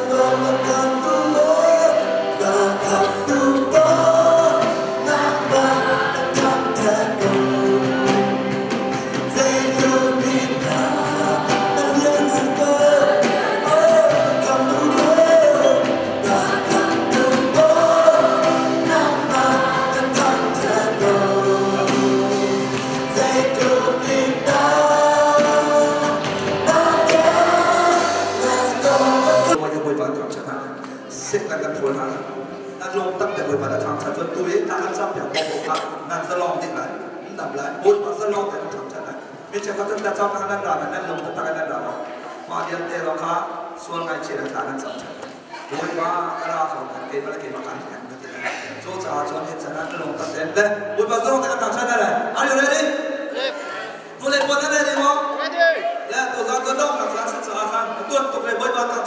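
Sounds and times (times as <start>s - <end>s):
drums: 0.0s - 29.6s
electric guitars: 0.0s - 29.6s
many voices singing together: 0.0s - 29.6s.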